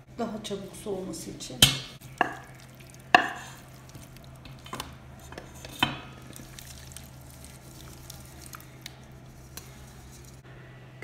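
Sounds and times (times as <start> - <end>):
steel cookware clanging: 1.6 - 3.6
meat sliding into pan: 2.0 - 10.4.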